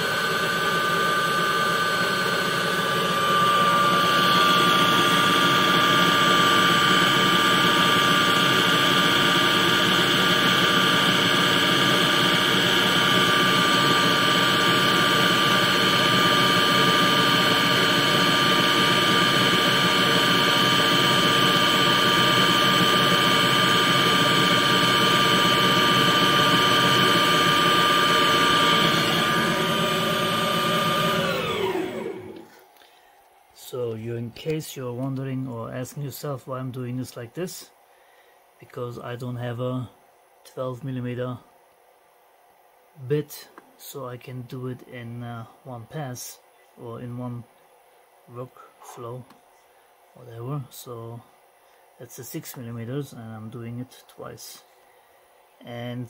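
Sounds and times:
end mill cutting aluminium: 0.0 - 32.5
lathe spindle whine: 0.0 - 32.7.

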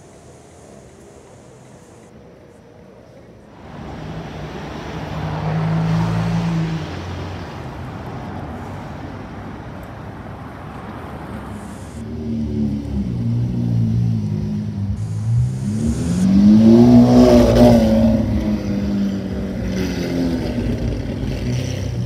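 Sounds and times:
city traffic noise: 0.0 - 22.0
sports car engine pulling away: 3.6 - 9.3, 10.6 - 22.0.

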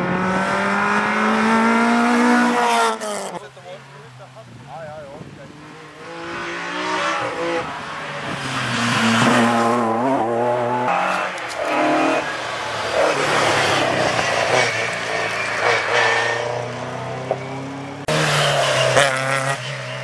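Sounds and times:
rally car accelerating through gears: 0.0 - 3.4, 5.4 - 20.0
rally car engine revving past: 0.0 - 3.4, 5.4 - 20.0.

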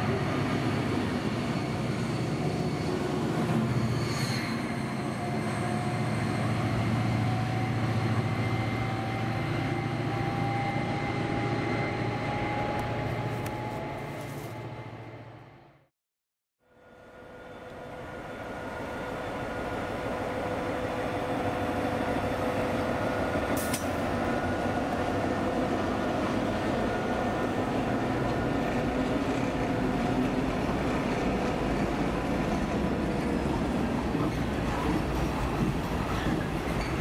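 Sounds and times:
train rumbling: 0.0 - 15.7, 17.0 - 37.0
diesel locomotive engine: 0.0 - 15.8, 16.6 - 37.0
short click: 23.6 - 24.0.

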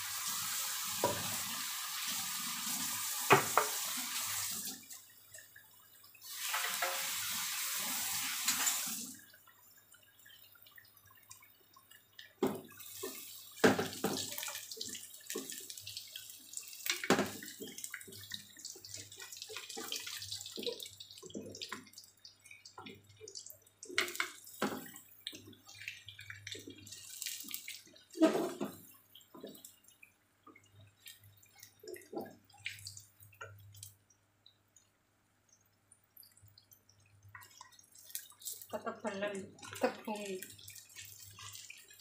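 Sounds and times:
food sizzling in hot oil: 0.0 - 4.9, 6.2 - 9.2.

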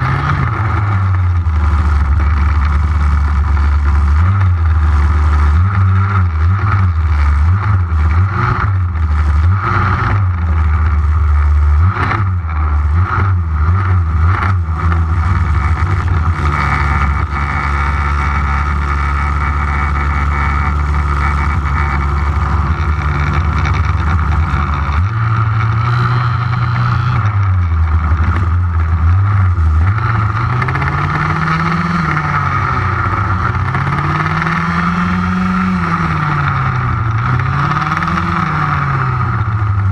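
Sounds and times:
small two-stroke engine revving: 0.0 - 39.9.

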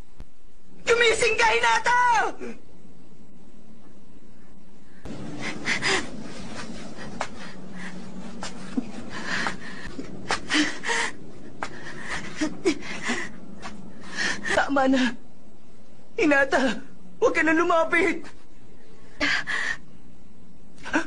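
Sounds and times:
steady low hiss: 0.0 - 21.0
person panting and gasping: 5.3 - 13.4.

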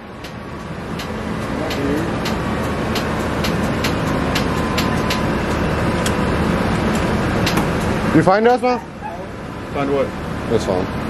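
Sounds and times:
car engine idling: 0.0 - 11.0
light regular clicking: 0.2 - 6.2.

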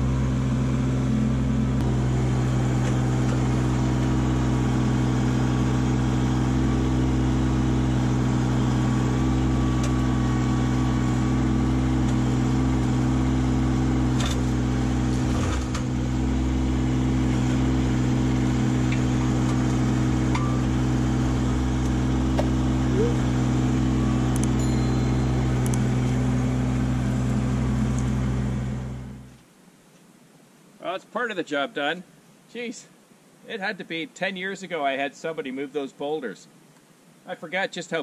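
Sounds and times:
tractor diesel engine running: 0.0 - 29.3.

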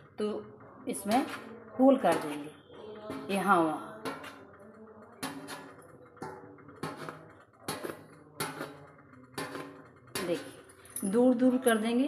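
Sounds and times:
toothpick tapping metal plate: 2.0 - 11.9.

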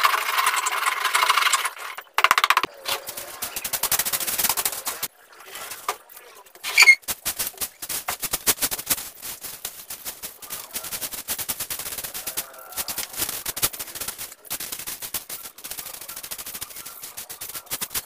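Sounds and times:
loud high squeak: 6.6 - 7.0
broom sweeping dirt floor: 6.6 - 18.0.

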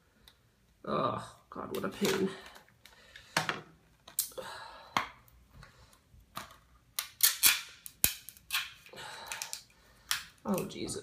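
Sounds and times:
tape ripping: 6.4 - 10.8.

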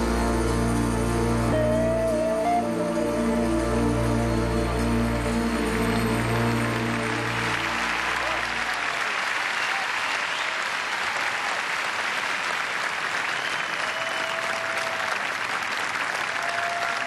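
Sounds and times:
audience applauding: 4.9 - 17.0.

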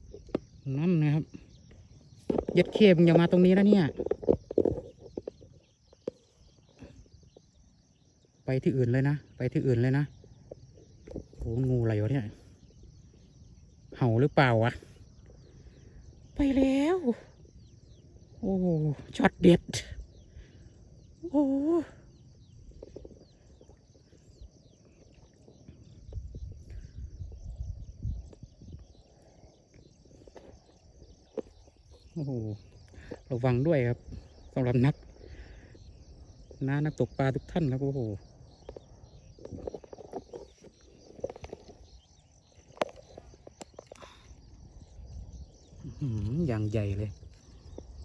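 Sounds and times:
faint high insect drone: 0.0 - 48.0
low rumble on microphone: 14.6 - 48.0
faint clicks and rustles: 38.5 - 45.1.

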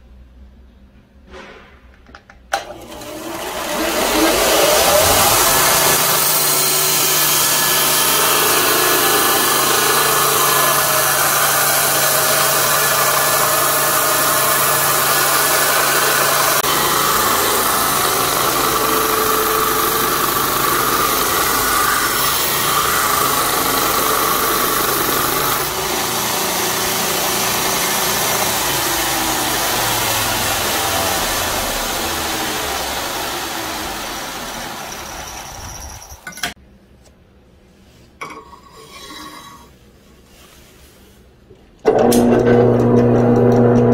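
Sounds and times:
motor hum: 2.6 - 36.3, 41.9 - 43.9
belt grinder grinding steel: 2.6 - 36.5.

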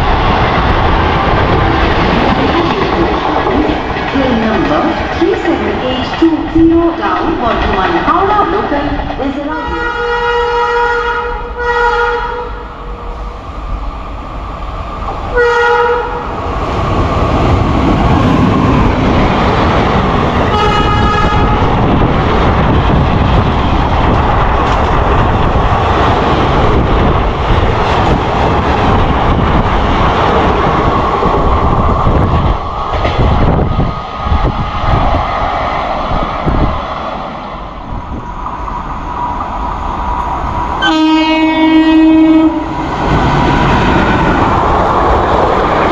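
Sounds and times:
train wheels rumbling and clattering: 0.0 - 11.7, 12.7 - 45.9
locomotive horn blasts: 9.5 - 12.6, 15.3 - 16.2, 20.5 - 21.6, 40.8 - 42.7.

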